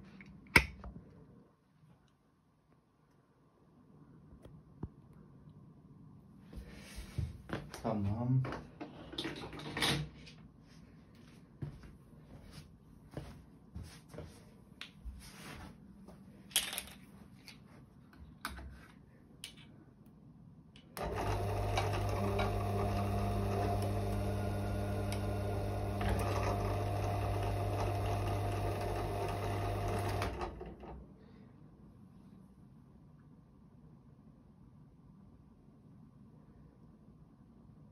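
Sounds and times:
drill press motor humming: 21.0 - 30.9.

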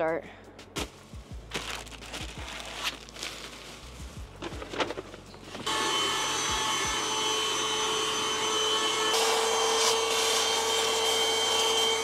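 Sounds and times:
handheld vacuum cleaner running: 5.6 - 12.0.

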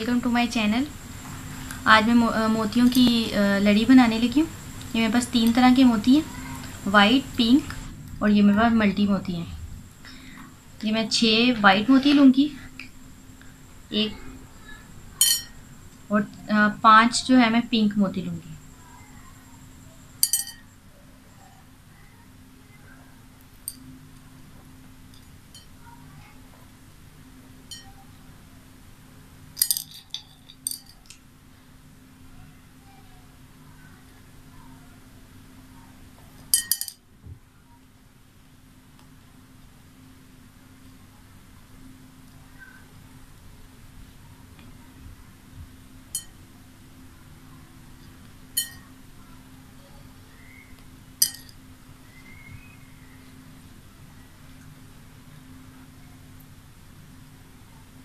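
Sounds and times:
faint steady hum: 0.0 - 58.0
beads clinking on a plate: 15.2 - 15.6, 20.2 - 20.7, 25.5 - 25.8, 27.7 - 28.0, 29.6 - 31.2, 36.4 - 37.0, 46.1 - 46.4, 48.5 - 48.9, 51.2 - 51.6.

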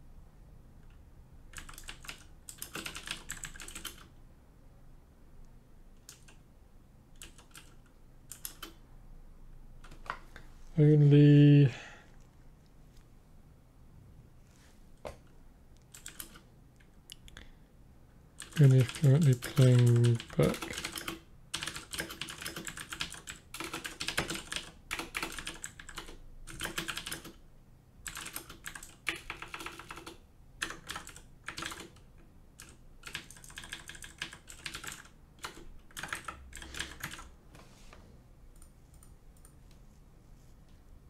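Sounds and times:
typing on a keyboard: 0.8 - 4.1, 6.0 - 6.4, 7.2 - 8.8, 9.8 - 10.2, 15.9 - 16.4, 18.4 - 27.4, 28.0 - 37.3.

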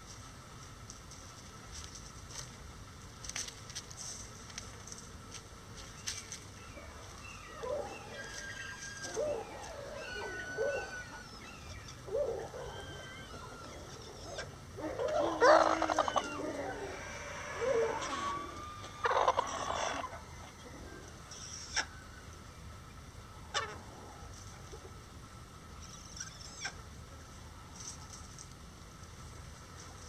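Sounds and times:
chickens clucking: 7.7 - 21.9.

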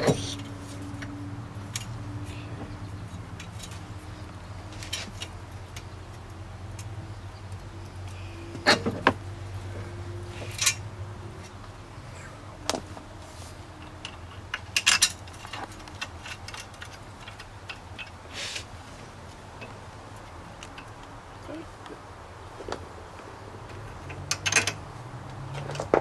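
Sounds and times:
metal parts clinking: 10.4 - 10.8, 13.8 - 18.2, 23.7 - 24.8, 25.5 - 26.0.

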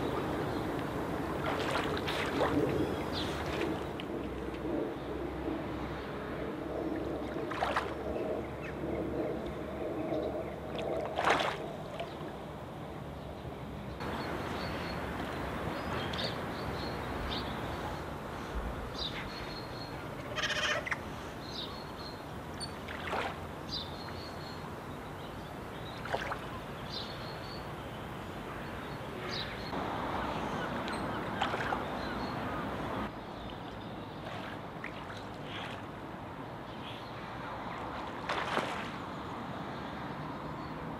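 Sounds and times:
steady water wash: 0.0 - 4.8, 6.4 - 8.6, 10.6 - 12.5, 22.2 - 24.2, 25.1 - 27.0, 29.7 - 33.1
otters splashing in water: 1.4 - 3.9, 10.8 - 12.2, 22.8 - 23.4, 31.3 - 31.9, 38.1 - 39.0.

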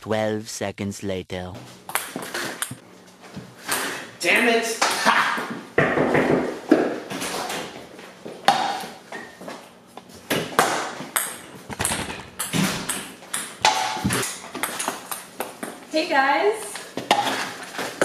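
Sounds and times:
ping-pong ball bouncing off cups: 4.4 - 7.2, 8.4 - 9.4, 10.3 - 15.9.

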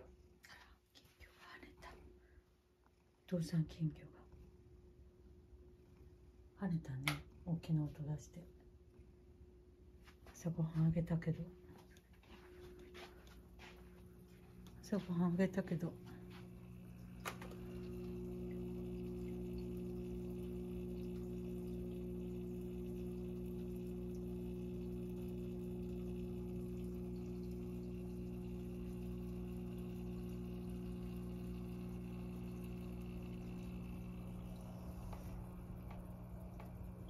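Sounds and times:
aquarium air pump humming: 9.1 - 37.0
moving water: 11.8 - 37.0.

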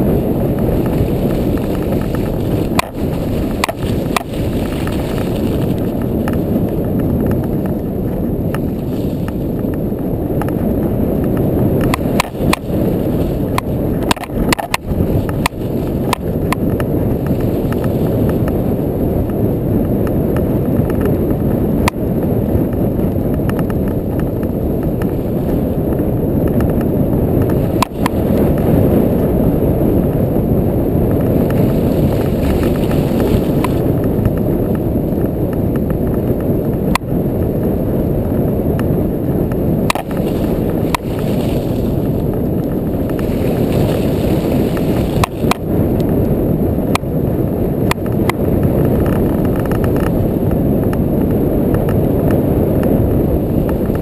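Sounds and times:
atv engine rumbling: 0.0 - 54.0.

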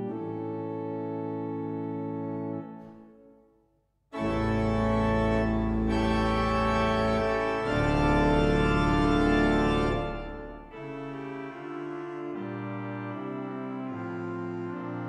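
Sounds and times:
pipe organ chords: 0.0 - 3.3, 4.1 - 15.0.

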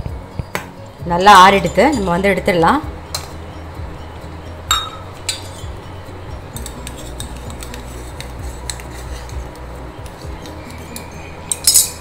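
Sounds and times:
metal cups clinking on steel plate: 4.7 - 5.7, 6.6 - 9.4, 10.0 - 12.0.

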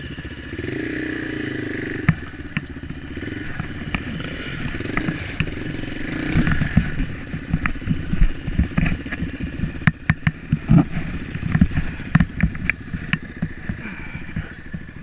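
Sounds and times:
dirt bike engine at low revs: 0.0 - 15.0
bike knocking and clattering: 2.0 - 15.0.

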